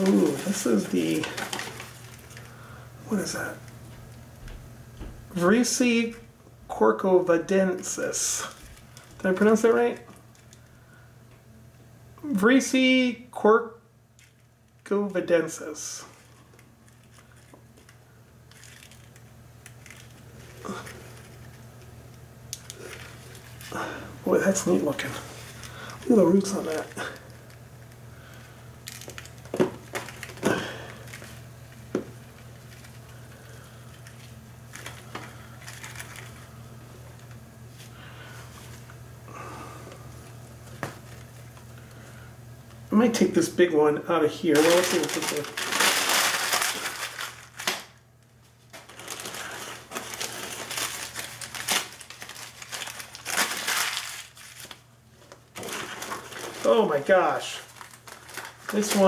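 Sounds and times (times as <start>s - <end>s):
packing paper crinkling: 0.0s - 4.2s, 7.7s - 10.8s, 16.0s - 38.9s, 44.4s - 59.0s
low steady hum: 0.0s - 59.0s.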